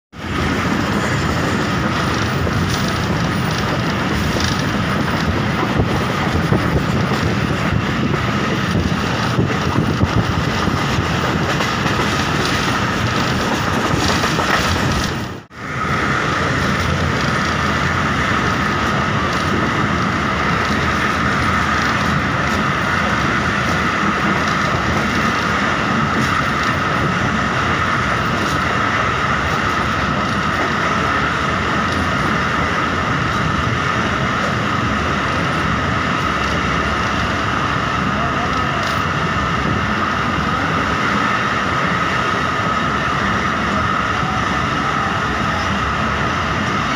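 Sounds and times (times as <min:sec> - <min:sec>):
train wheels rumbling on rails: 0:00.1 - 0:46.9
wheel clatter and clicks: 0:01.8 - 0:15.3, 0:18.8 - 0:27.1.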